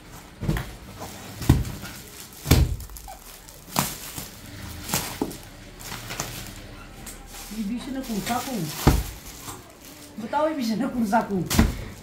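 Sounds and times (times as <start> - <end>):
fabric packs thumping on counter: 0.4 - 5.4, 8.2 - 9.4
plastic wrapping crinkling: 0.7 - 12.0.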